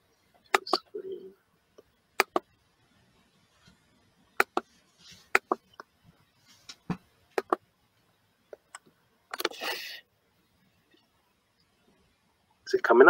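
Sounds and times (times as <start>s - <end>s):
computer mouse and keyboard clicks: 4.4s - 4.6s, 5.4s - 5.9s, 7.4s - 7.6s, 8.5s - 9.6s.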